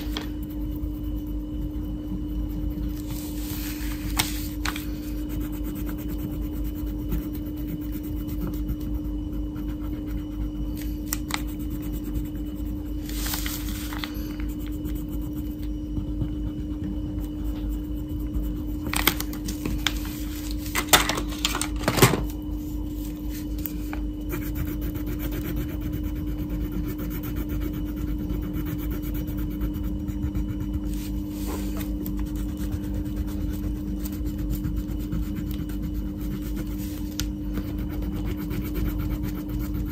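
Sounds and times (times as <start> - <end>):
steady low hum: 0.0 - 39.9
crayon scratching on paper: 3.0 - 15.6, 24.3 - 39.9.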